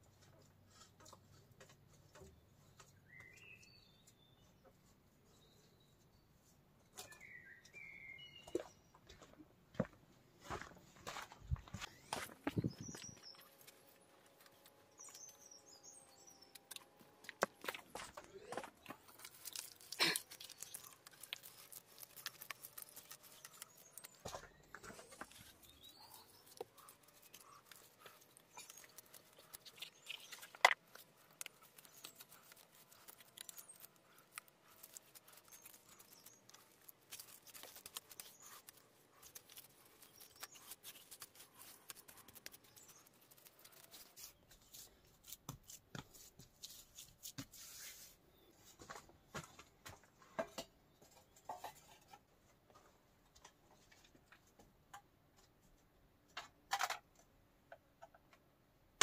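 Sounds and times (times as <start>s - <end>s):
small objects clicking and rustling: 16.4s - 45.7s.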